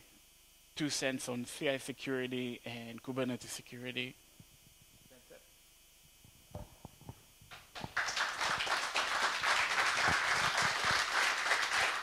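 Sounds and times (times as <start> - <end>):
audience applauding: 7.5 - 12.0.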